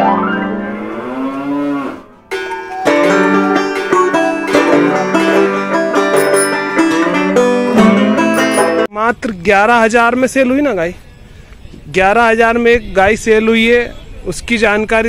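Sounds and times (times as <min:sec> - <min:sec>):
bull mooing: 0:00.2 - 0:02.2
plucked string music: 0:02.3 - 0:08.9.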